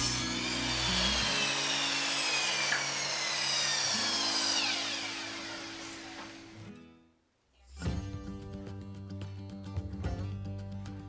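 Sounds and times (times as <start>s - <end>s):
power saw whining: 0.0s - 6.7s.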